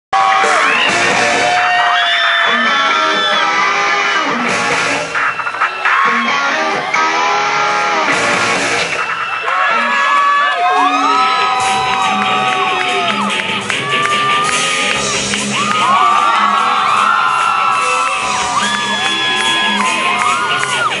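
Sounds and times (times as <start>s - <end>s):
electric guitars: 2.4s - 9.1s
live rock band playing: 2.5s - 9.9s, 10.7s - 21.0s.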